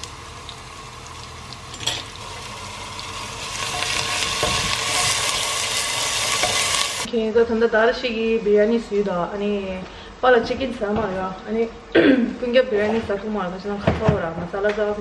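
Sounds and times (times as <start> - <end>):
onions sizzling in hot oil: 0.0 - 7.1
wooden spoon stirring: 3.4 - 7.1.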